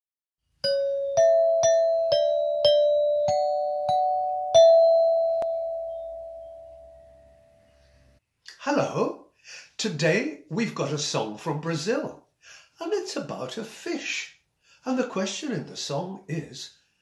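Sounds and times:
bell-like chime jingle: 0.6 - 7.7.

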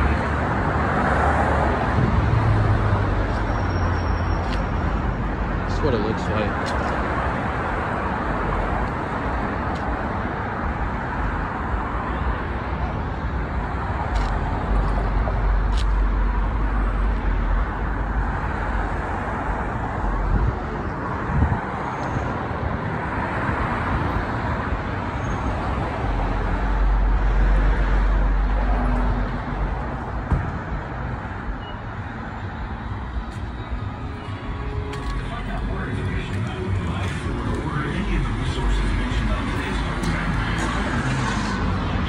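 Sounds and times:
cars driving past: 0.0 - 42.0
brief thump: 30.2 - 30.6.

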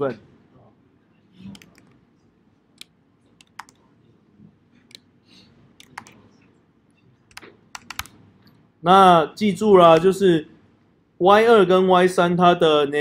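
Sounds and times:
computer keystrokes and clicks: 1.5 - 2.0, 2.8 - 3.8, 5.8 - 6.2, 7.3 - 8.2.

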